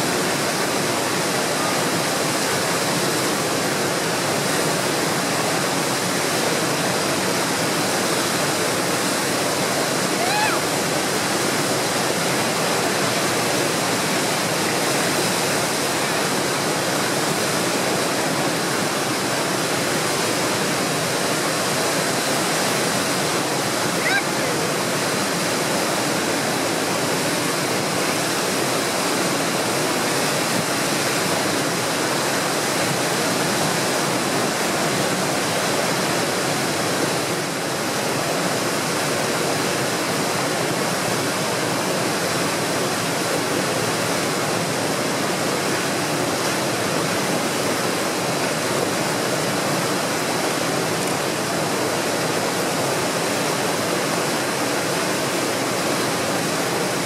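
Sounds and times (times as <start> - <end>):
tidal rapids rushing: 0.0 - 57.0.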